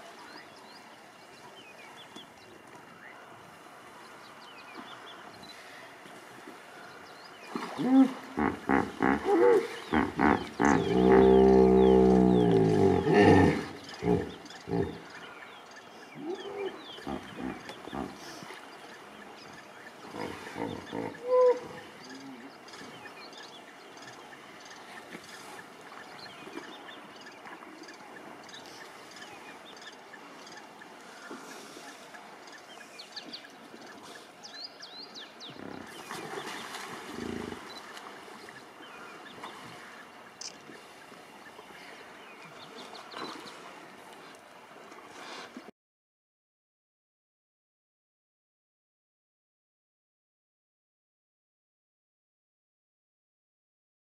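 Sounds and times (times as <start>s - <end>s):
hippopotamus grunts: 7.6s - 15.2s, 16.2s - 18.5s, 20.1s - 22.5s, 35.5s - 36.2s
hippopotamus honking call: 7.8s - 15.1s, 16.2s - 18.3s.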